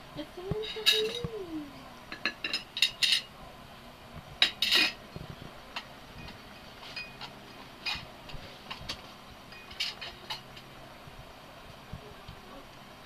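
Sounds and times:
cutlery clinking on a china plate: 0.6s - 1.3s, 4.4s - 5.0s.

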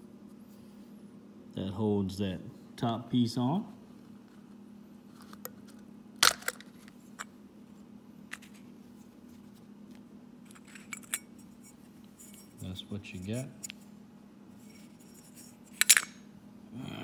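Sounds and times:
steady low hum: 0.0s - 17.0s
small metal parts clicking: 15.8s - 16.2s.

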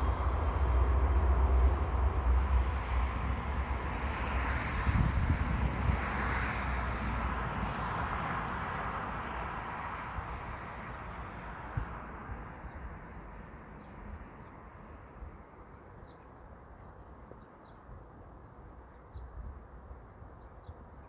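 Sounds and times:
low steady rumble: 0.0s - 3.9s
train passing: 0.0s - 18.9s.

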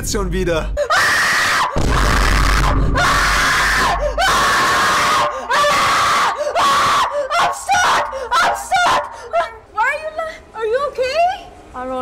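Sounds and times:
person screaming: 0.8s - 9.5s.

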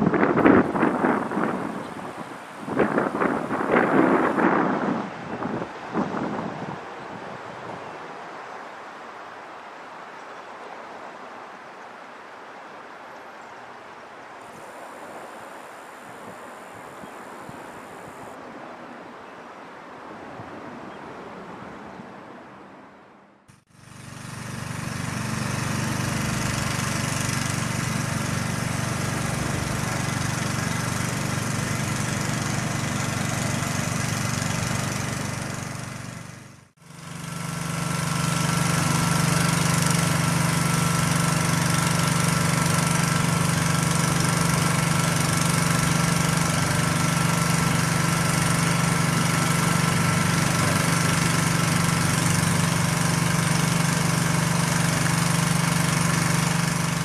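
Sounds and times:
diesel locomotive engine idling: 23.9s - 36.5s.

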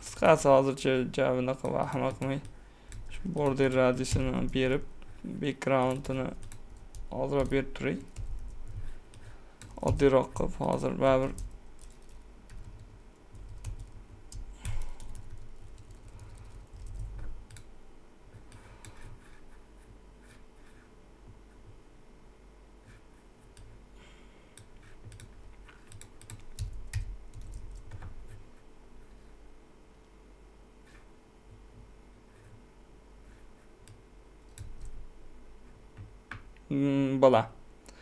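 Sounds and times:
computer keyboard typing: 1.6s - 4.9s, 5.8s - 17.7s, 24.6s - 28.2s, 33.8s - 35.0s.

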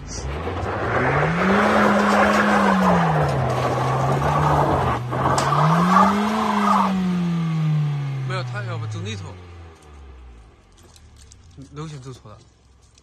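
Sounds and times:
tyres spinning on loose ground: 0.0s - 7.0s
vehicle engine revving hard: 0.0s - 10.0s.

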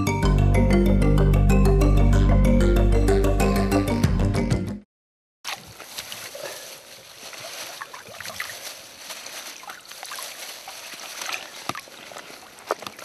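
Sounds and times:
water splashing and sloshing: 5.5s - 13.0s
plastic bag crackling: 6.0s - 12.0s.

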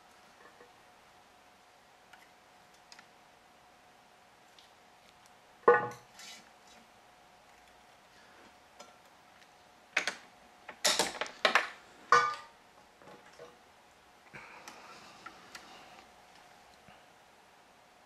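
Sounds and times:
faint steady hum: 0.0s - 18.0s
soft scratching: 6.1s - 6.9s.

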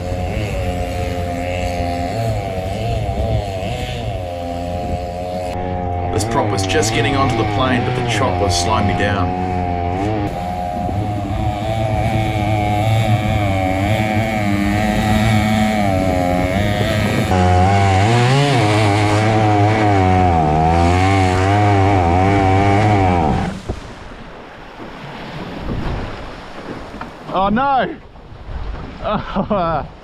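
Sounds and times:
chainsaw engine at high revs: 0.0s - 23.7s
wind: 0.0s - 30.0s
water splashing: 22.6s - 29.1s.

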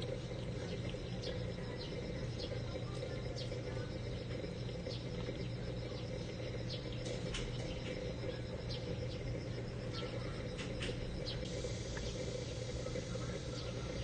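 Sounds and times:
insects trilling and chirping: 0.0s - 14.0s
steady low hum: 0.0s - 14.0s.

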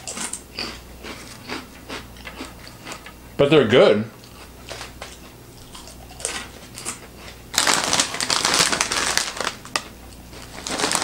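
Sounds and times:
plastic snack bag crinkling: 5.7s - 11.0s.

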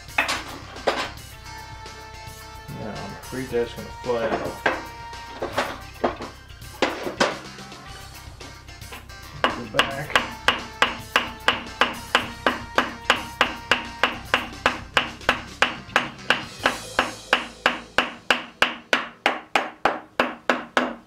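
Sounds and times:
hammer blows on metal: 8.9s - 20.9s.

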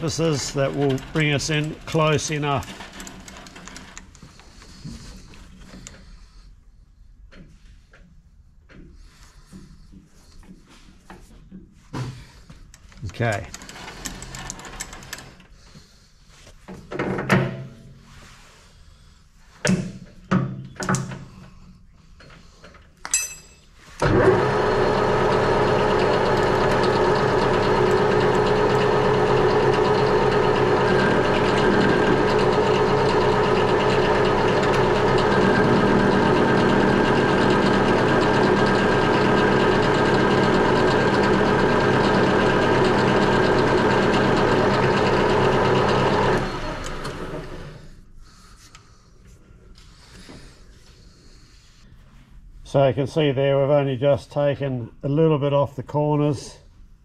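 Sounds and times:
metal lathe running: 0.0s - 4.0s, 24.0s - 47.8s.

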